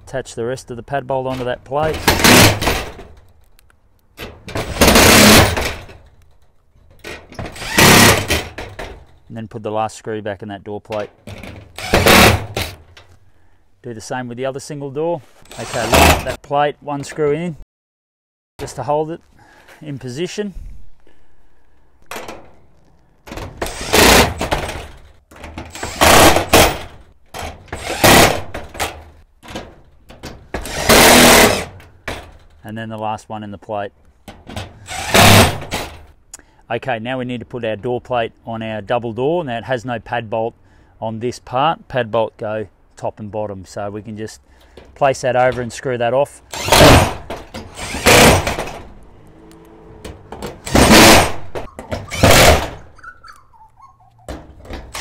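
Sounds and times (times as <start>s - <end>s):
impact driver hammering screw: 7.4s - 8.5s, 23.6s - 24.5s, 25.7s - 26.8s, 27.7s - 28.4s, 30.6s - 31.7s, 34.9s - 35.9s, 46.5s - 48.7s, 50.5s - 52.8s.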